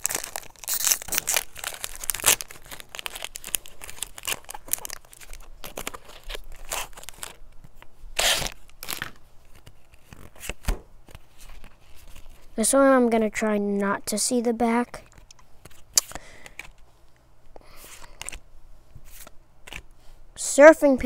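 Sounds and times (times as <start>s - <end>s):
foil wrapper crinkling and tearing: 0.0s - 7.5s, 8.2s - 12.6s.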